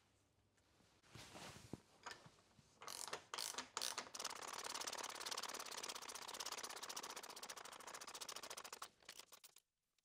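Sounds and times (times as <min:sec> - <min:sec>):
ratchet tool clicks: 0:02.8 - 0:09.6.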